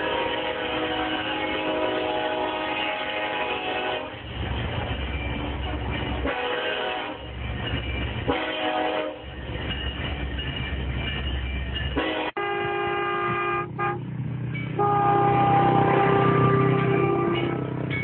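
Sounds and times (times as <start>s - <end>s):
train horn blasts: 0.0s - 4.2s, 6.2s - 7.3s, 8.3s - 9.2s, 12.0s - 14.1s, 14.8s - 17.8s
low rumble of moving train: 0.0s - 18.0s.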